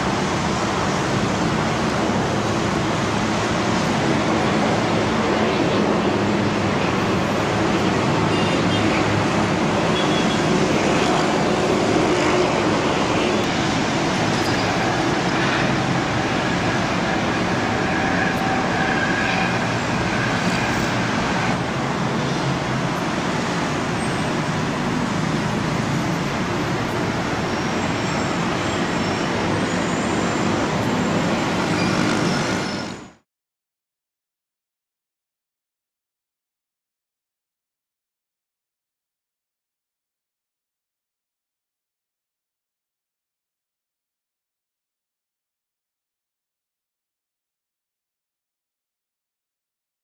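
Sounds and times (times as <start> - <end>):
aircraft engines roaring: 0.0 - 33.2.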